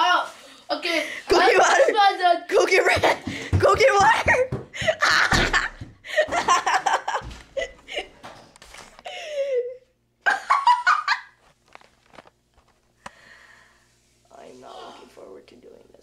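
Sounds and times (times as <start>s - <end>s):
boy laughing: 1.3s - 8.2s, 9.1s - 11.4s.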